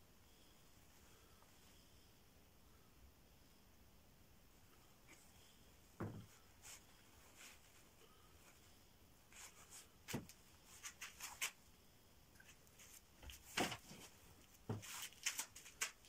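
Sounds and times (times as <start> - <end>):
fabric rustling: 5.0 - 11.6, 12.4 - 16.0.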